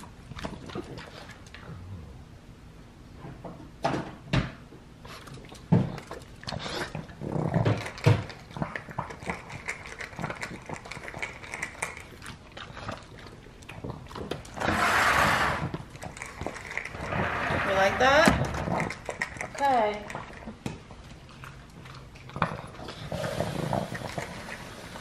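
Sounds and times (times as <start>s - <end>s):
dog crunching kibble: 5.2s - 25.0s.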